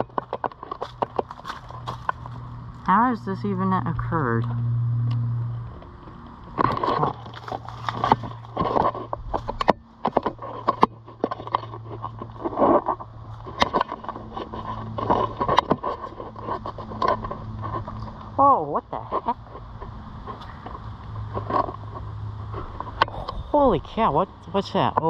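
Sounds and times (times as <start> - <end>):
footsteps crunching on gravel: 0.0 - 2.8, 6.7 - 18.3
steady low hum: 0.0 - 25.0.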